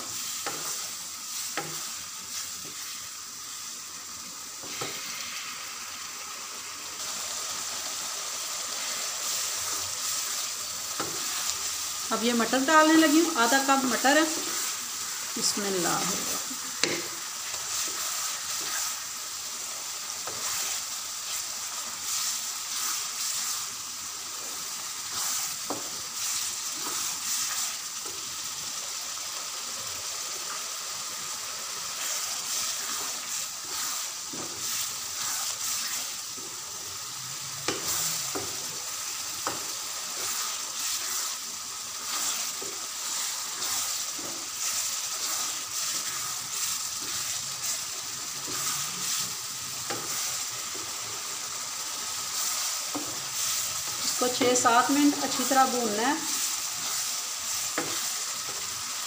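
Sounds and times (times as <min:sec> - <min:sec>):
mince sizzling in oil: 0:00.0 - 0:59.0
spatula scraping and tapping: 0:01.5 - 0:01.8, 0:11.0 - 0:11.4, 0:16.8 - 0:19.0, 0:37.6 - 0:38.6, 0:39.4 - 0:41.4, 0:49.8 - 0:50.9, 0:57.7 - 0:58.6.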